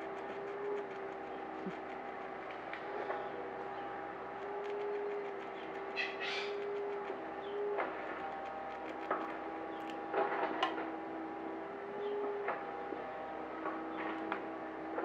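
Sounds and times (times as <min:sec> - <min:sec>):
squirrel gnawing nutshell: 0:00.0 - 0:02.9, 0:04.3 - 0:07.2, 0:07.9 - 0:10.0
steady mechanical hum: 0:00.0 - 0:15.0.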